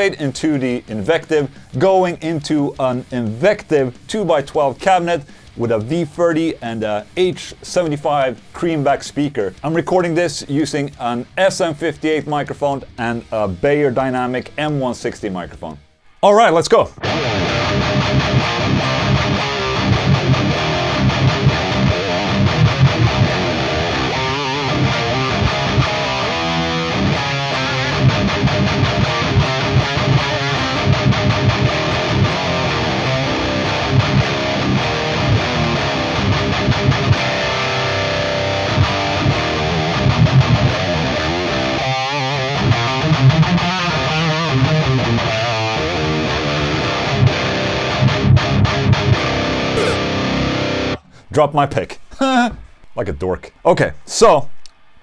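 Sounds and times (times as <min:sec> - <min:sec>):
distorted electric guitar riffing: 0:00.0 - 0:08.6, 0:16.9 - 0:51.2.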